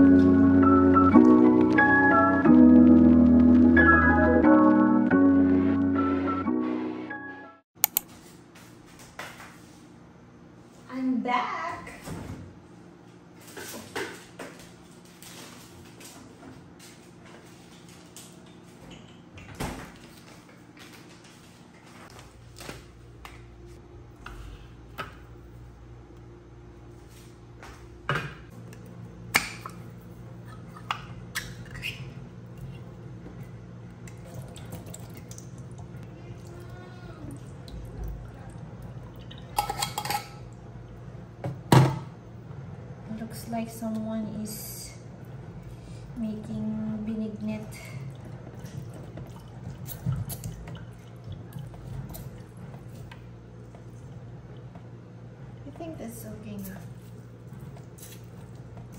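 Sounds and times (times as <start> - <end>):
low steady hum: 10.0 - 58.9.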